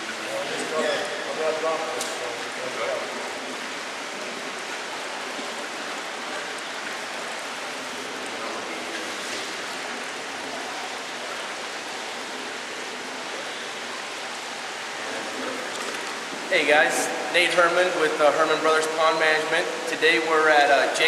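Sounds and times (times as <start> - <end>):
water rushing and bubbling: 0.0 - 21.0.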